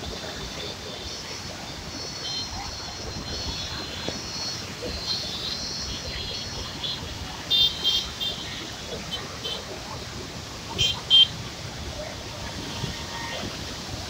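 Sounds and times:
faint crowd voices: 0.0s - 14.0s
water roaring over rocks: 0.0s - 14.0s
wind on microphone: 1.4s - 7.5s.

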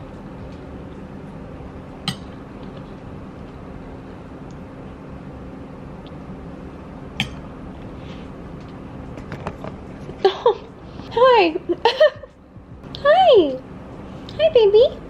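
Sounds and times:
room hum: 0.0s - 15.0s.

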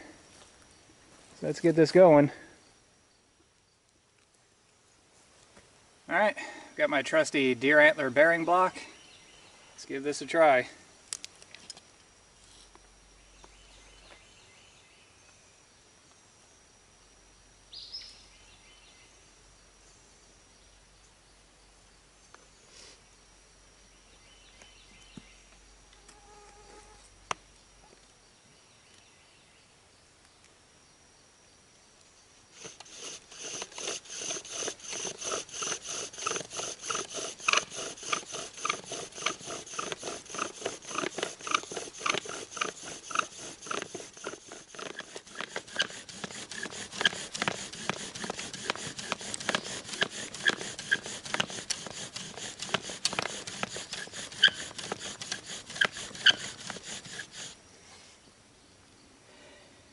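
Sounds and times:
squeaking: 32.6s - 57.5s
bow drill spindle turning: 32.6s - 57.6s.

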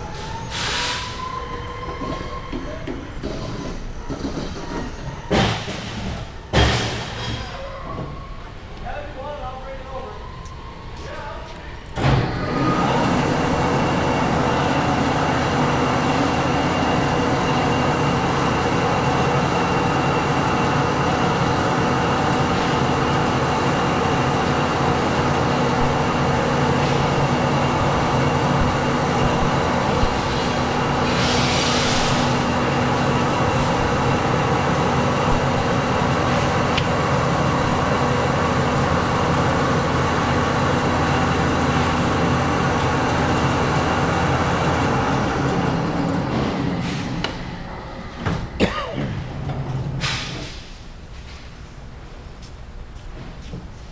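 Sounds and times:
coolant pump running: 12.1s - 46.5s.

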